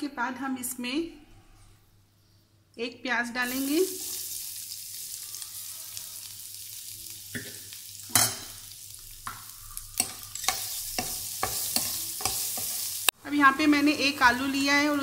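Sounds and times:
onion frying in hot oil: 0:03.4 - 0:15.0.

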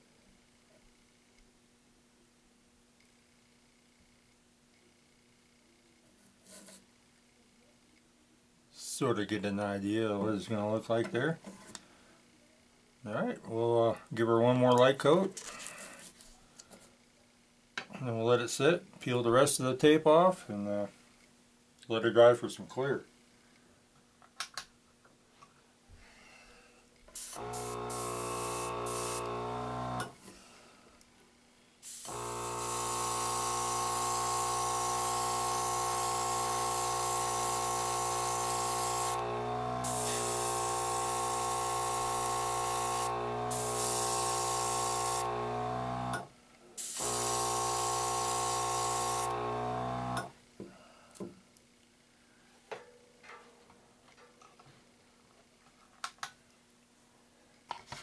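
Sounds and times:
airbrush air hiss: 0:27.2 - 0:29.5, 0:31.8 - 0:45.3, 0:46.8 - 0:49.4
compressor motor hum: 0:27.2 - 0:30.2, 0:31.8 - 0:50.3.

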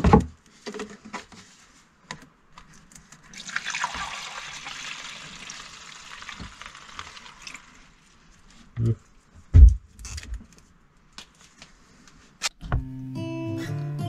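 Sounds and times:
liquid pouring through a funnel: 0:03.3 - 0:08.2.

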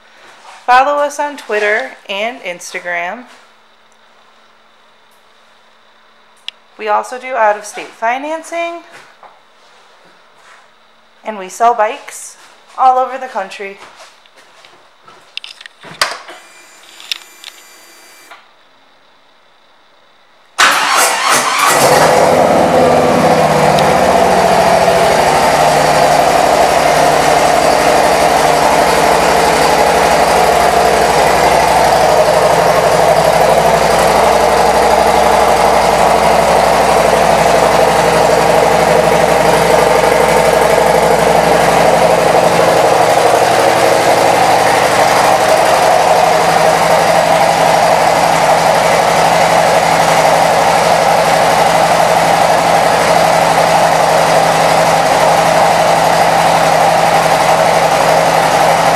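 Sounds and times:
motorcycle engine idling: 0:21.8 - 0:58.9.

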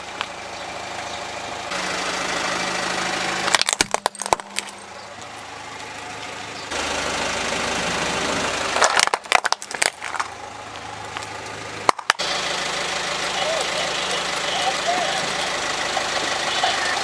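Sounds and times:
car engine idling: 0:00.0 - 0:17.0
plastic toys cracking under tyre: 0:03.5 - 0:04.8, 0:08.8 - 0:10.4, 0:11.2 - 0:12.2.

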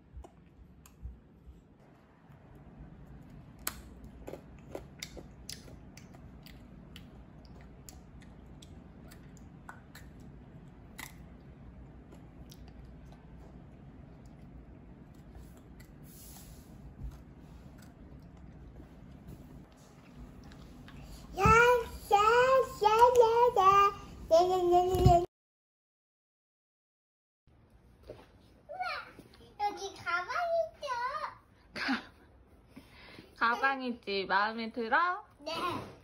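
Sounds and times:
steady low hum: 0:00.0 - 0:25.3
mouth clicks and crunches: 0:03.5 - 0:13.3.

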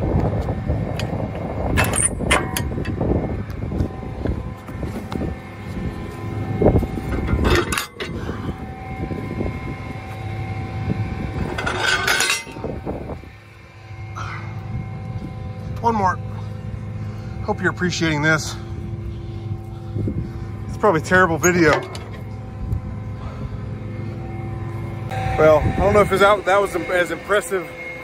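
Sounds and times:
tractor engine droning: 0:00.0 - 0:28.0
metal clanks and rattles: 0:00.9 - 0:03.0, 0:06.8 - 0:08.4, 0:11.3 - 0:12.8, 0:21.0 - 0:22.5.

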